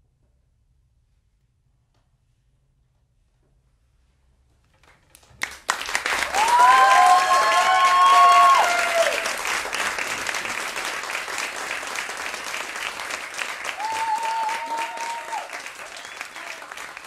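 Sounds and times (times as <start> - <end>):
audience applause: 5.4 - 17.0.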